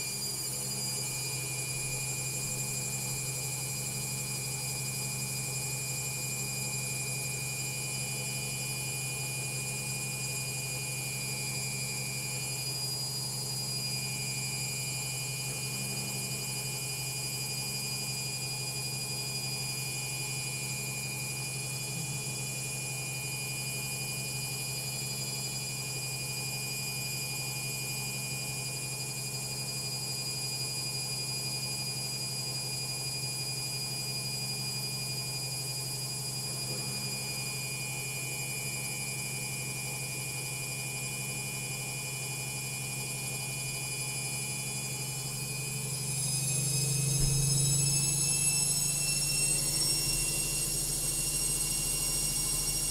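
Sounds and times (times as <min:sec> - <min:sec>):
washing machine spinning: 0:00.0 - 0:52.9.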